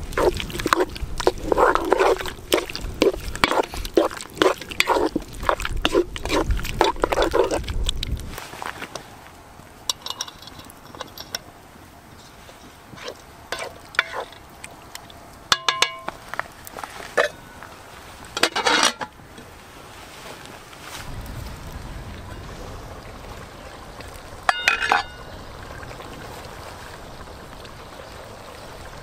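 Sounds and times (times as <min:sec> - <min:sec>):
spatula stirring wet food: 0:00.0 - 0:08.1, 0:12.2 - 0:16.2
metal lid clattering on pot: 0:09.9 - 0:11.4, 0:15.5 - 0:16.2, 0:18.4 - 0:19.1, 0:24.5 - 0:25.1
ringing metal clank: 0:15.5 - 0:16.2, 0:24.5 - 0:25.2.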